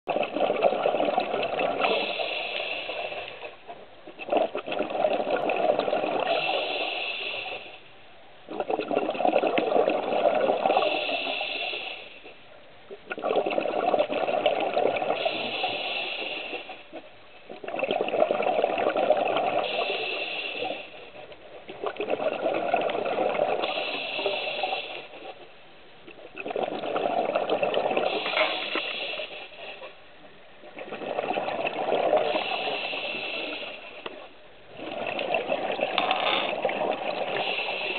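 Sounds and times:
diver breathing through regulator: 1.8 - 3.6, 6.2 - 7.9, 10.7 - 12.3, 15.2 - 16.9, 19.6 - 21.1, 23.6 - 25.2, 28.1 - 29.9, 32.2 - 34.0, 37.2 - 37.9.

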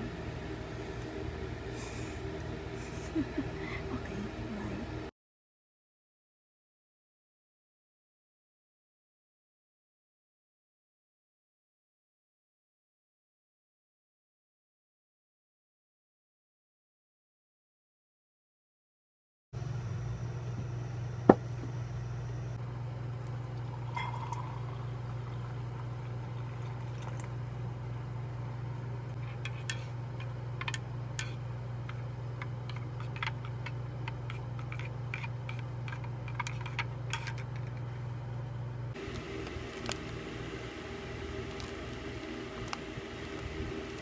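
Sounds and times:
higher hum: 0.0 - 5.1, 37.9 - 44.0
steady low hum: 0.0 - 5.1, 19.6 - 44.0
glass mug and utensils clinking: 23.9 - 24.7.

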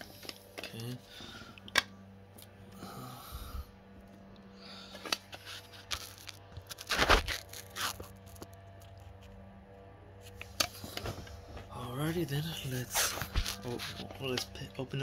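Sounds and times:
wrappers crinkling: 5.3 - 9.2, 12.8 - 14.4.

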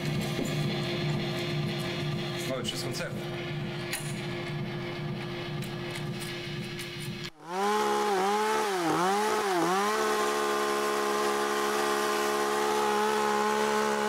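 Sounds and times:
chainsaw cutting wood: 5.2 - 14.0.

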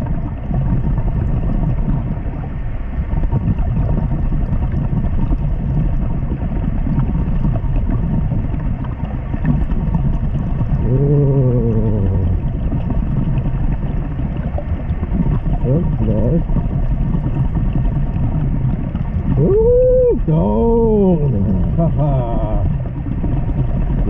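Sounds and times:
muffled underwater rumble: 0.0 - 24.0
person humming underwater: 10.6 - 13.1, 19.2 - 23.1.

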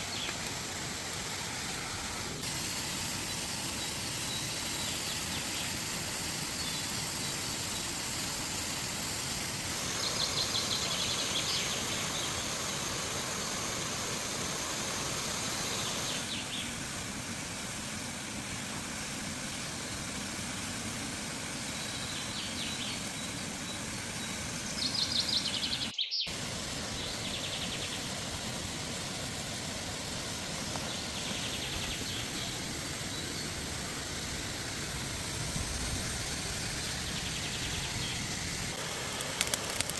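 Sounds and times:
small birds chirping: 0.0 - 0.6, 3.1 - 9.2, 9.8 - 16.8, 21.4 - 28.7, 30.2 - 34.3, 35.9 - 38.8
falling water rushing: 0.0 - 39.9
water boiling: 0.0 - 39.9.

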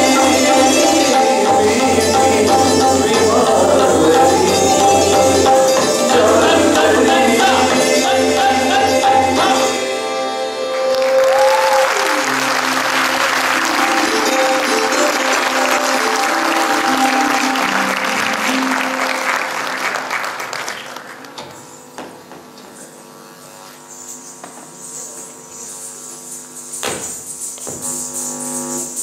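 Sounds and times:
singing with instruments: 0.0 - 20.1
held instrument notes: 0.0 - 20.5
audience applause: 10.6 - 21.4.

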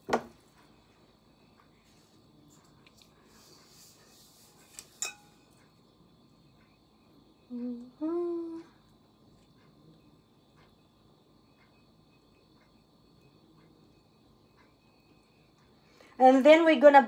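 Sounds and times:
metallic clinks on a bowl: 5.0 - 5.6
woman humming: 7.4 - 8.8.

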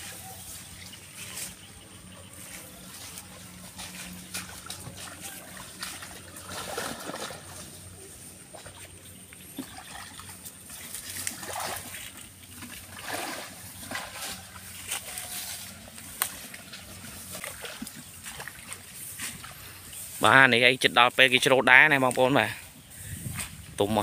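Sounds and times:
feet wading through muddy water: 0.0 - 24.0.

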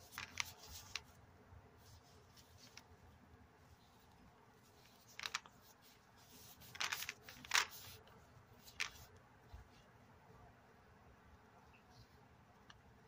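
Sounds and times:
plastic gloves crinkling on bottle: 4.7 - 8.0.

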